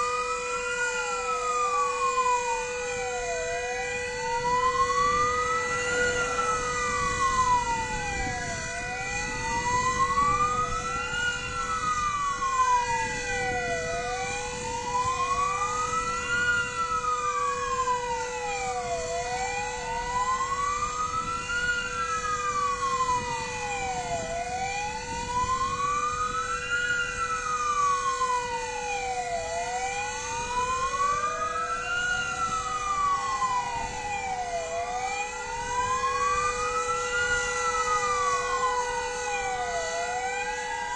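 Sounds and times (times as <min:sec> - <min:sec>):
fire engine sirens wailing: 0:00.0 - 0:40.9
siren winding up: 0:04.4 - 0:19.6.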